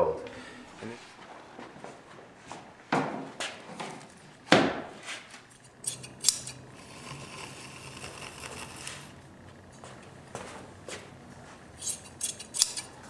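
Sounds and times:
faint steady hum: 0.0 - 13.0
scissor snips: 5.8 - 6.6, 11.8 - 12.9.

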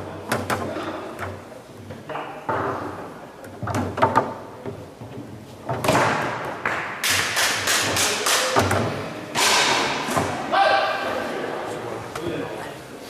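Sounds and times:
foosball ball and rods knocking: 0.3 - 10.4.

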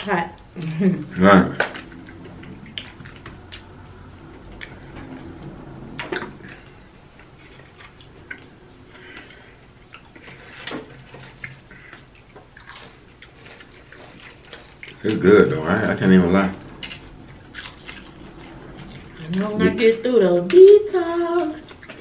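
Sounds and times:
people chewing: 0.4 - 22.0.

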